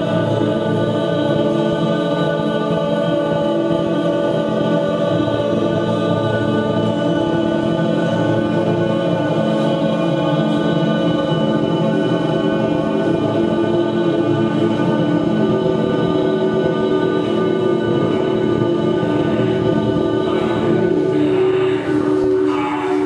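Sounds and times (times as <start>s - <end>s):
choir-like drone: 0.0s - 23.0s.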